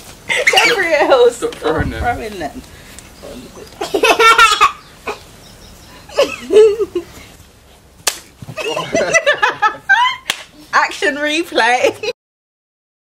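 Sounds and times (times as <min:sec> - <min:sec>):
excited voices: 0:00.3 - 0:02.6
people laughing: 0:03.7 - 0:05.2, 0:06.0 - 0:07.3, 0:08.6 - 0:10.3.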